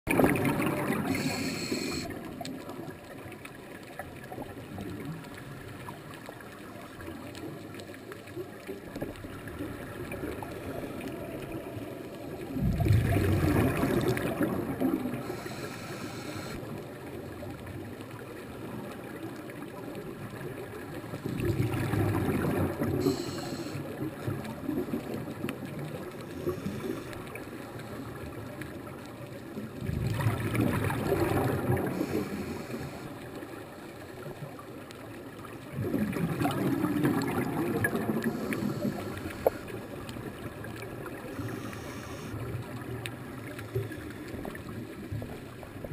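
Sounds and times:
muffled underwater murmur: 0:00.1 - 0:02.4, 0:12.8 - 0:16.7, 0:21.4 - 0:24.1, 0:36.1 - 0:45.3
gurgling exhaled bubbles: 0:00.1 - 0:16.7, 0:19.5 - 0:28.8, 0:29.6 - 0:34.6, 0:35.5 - 0:45.9.

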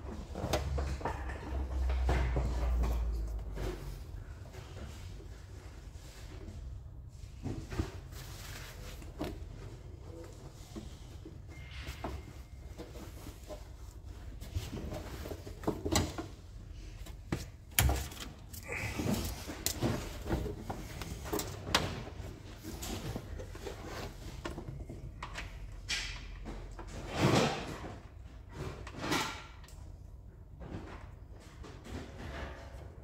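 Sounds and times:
wiring loom handled with clicks and rustling: 0:12.8 - 0:27.2.

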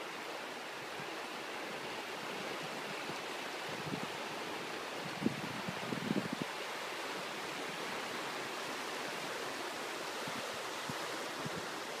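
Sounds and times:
floodwater rushing: 0:00.0 - 0:12.0.

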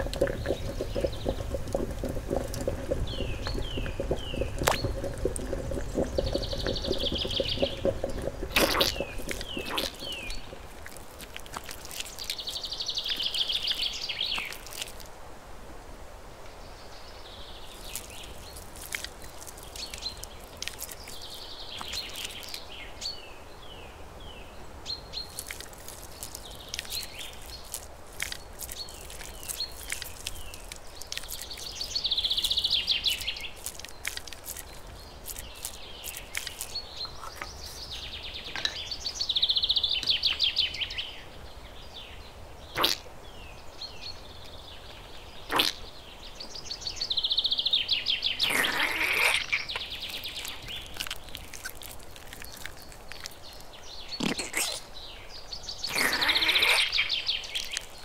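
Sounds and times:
buzzy bird trills: 0:00.0 - 0:10.7
birds chirping: 0:00.0 - 0:15.1, 0:16.6 - 0:58.0.

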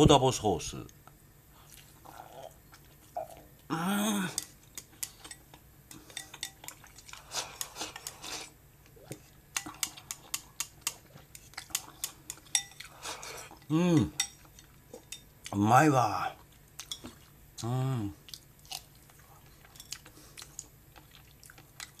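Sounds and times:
person humming: 0:03.2 - 0:04.4, 0:13.7 - 0:14.2, 0:17.6 - 0:18.2
chopsticks clicking on bowl: 0:09.6 - 0:12.7.

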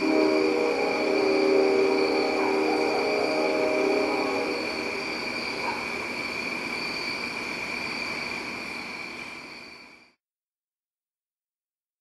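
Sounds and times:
broad rushing noise: 0:00.0 - 0:08.9
insect chorus: 0:00.0 - 0:10.2.

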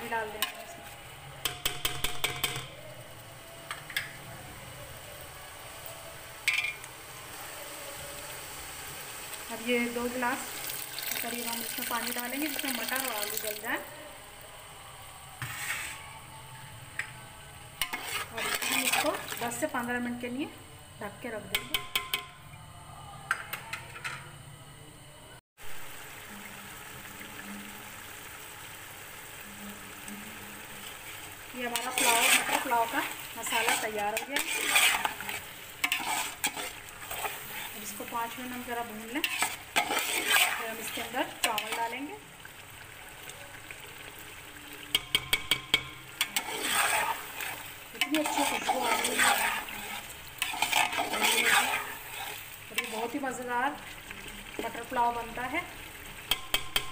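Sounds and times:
food bubbling and sizzling: 0:00.0 - 0:22.4, 0:25.6 - 0:56.9
metal spoon scraping metal pot: 0:17.8 - 0:19.6, 0:31.6 - 0:41.9, 0:44.9 - 0:53.2.

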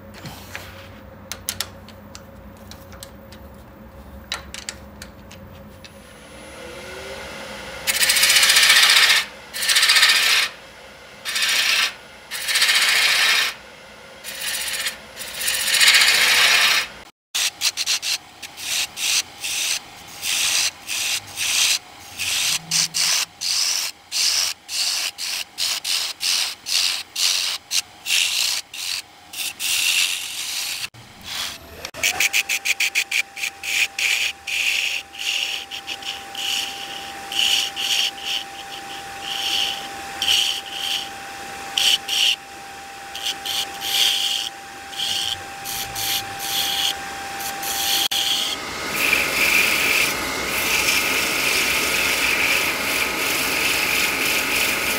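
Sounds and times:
abrasive strokes rubbing wood: 0:11.3 - 0:13.6, 0:14.2 - 0:41.1, 0:43.1 - 0:54.9.

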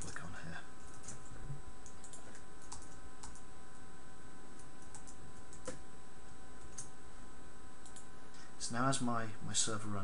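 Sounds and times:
faint constant tones: 0:00.0 - 0:10.0
computer keyboard keystrokes: 0:01.8 - 0:03.4, 0:04.8 - 0:05.8.

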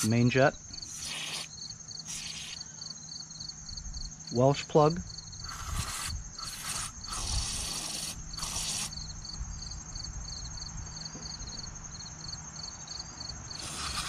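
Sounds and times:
crickets chirping: 0:00.0 - 0:14.0
aerosol can hissing: 0:00.8 - 0:02.6, 0:05.4 - 0:09.0, 0:13.6 - 0:14.0.

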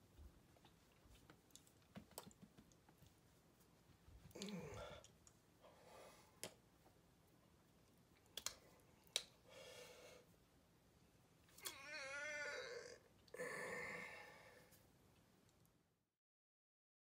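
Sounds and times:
faint meow-like cry: 0:11.6 - 0:14.3.

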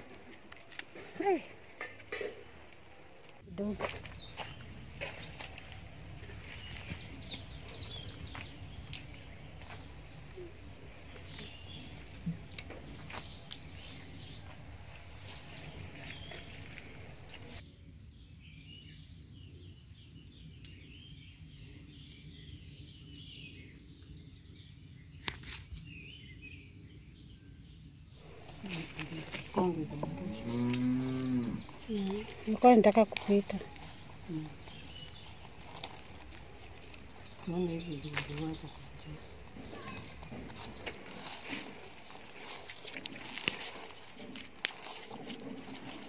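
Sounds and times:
bean pods crackling and snapping: 0:00.0 - 0:17.6, 0:28.2 - 0:46.0
insect chirping trill: 0:03.4 - 0:41.3.

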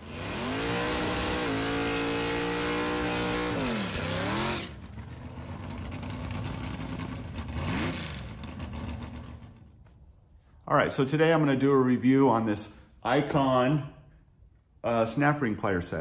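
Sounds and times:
drag car engine revving: 0:00.0 - 0:09.7
spinning tyres hissing: 0:00.0 - 0:09.7.

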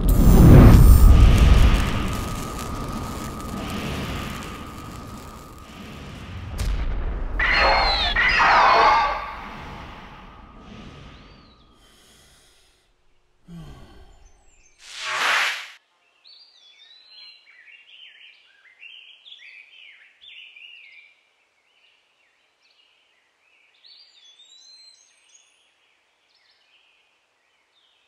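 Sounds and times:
burst of static: 0:00.0 - 0:11.4, 0:14.8 - 0:15.8.

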